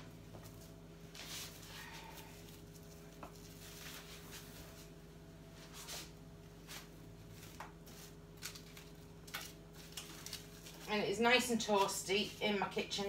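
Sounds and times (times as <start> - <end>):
faint steady hum: 0.0 - 13.0
cling film rustling: 5.7 - 12.5.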